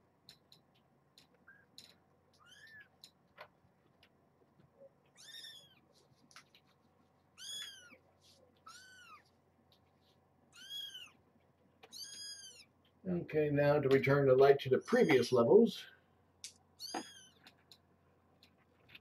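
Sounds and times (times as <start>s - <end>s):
kitten meowing: 5.2s - 5.8s, 8.6s - 9.2s, 10.5s - 11.2s, 11.8s - 12.7s, 16.8s - 17.4s.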